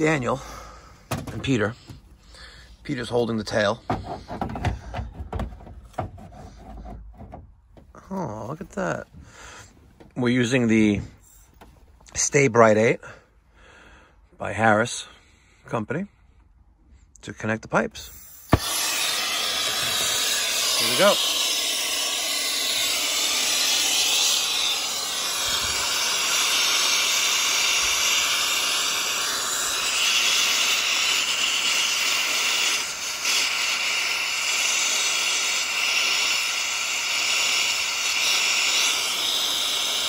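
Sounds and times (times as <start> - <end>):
torch flame hissing: 18.1 - 40.0.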